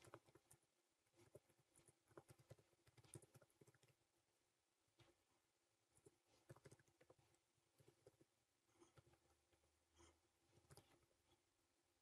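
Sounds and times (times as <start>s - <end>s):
faint keyboard typing: 0.0s - 4.1s, 5.9s - 11.4s.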